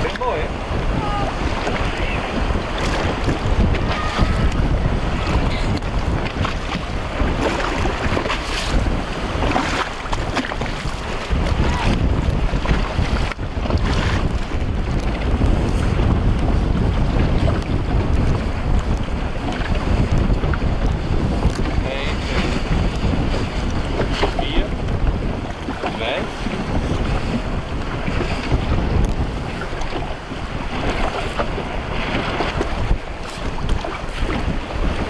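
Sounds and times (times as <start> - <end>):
waves splashing: 0.0 - 35.0
wind buffeting microphone: 0.0 - 35.0.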